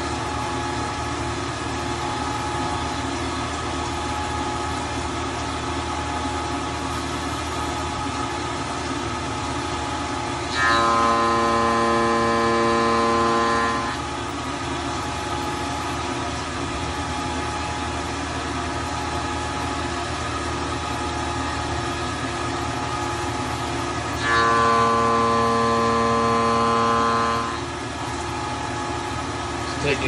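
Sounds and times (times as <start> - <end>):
machine running hum: 0.0 - 30.0
mill cutting metal singing tone: 9.5 - 18.2, 18.8 - 29.2.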